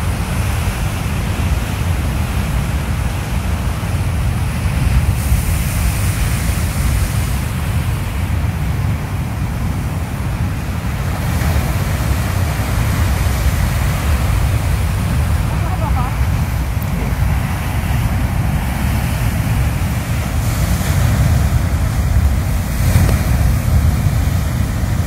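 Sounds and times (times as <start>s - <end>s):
wind buffeting microphone: 0.0s - 25.0s
surf breaking on rocks: 5.0s - 25.0s.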